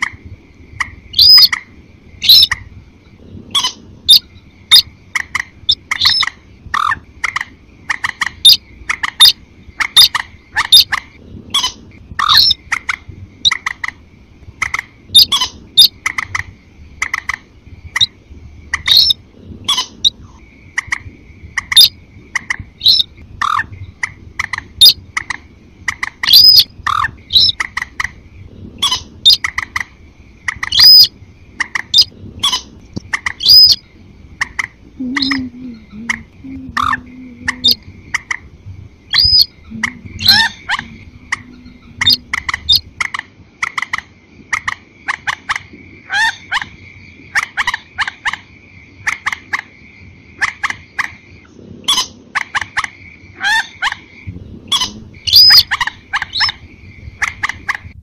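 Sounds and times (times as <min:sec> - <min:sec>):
sharp repeated bird calls: 0:00.0 - 0:02.8, 0:03.4 - 0:58.0
longer whistled bird calls: 0:01.1 - 0:01.6, 0:02.2 - 0:02.6, 0:03.5 - 0:12.8, 0:18.8 - 0:25.3, 0:26.0 - 0:28.1, 0:28.8 - 0:29.8, 0:30.5 - 0:31.1, 0:31.7 - 0:33.9, 0:39.0 - 0:42.9, 0:54.7 - 0:57.5
faint steady high tone: 0:35.0 - 0:38.0, 0:39.2 - 0:42.4.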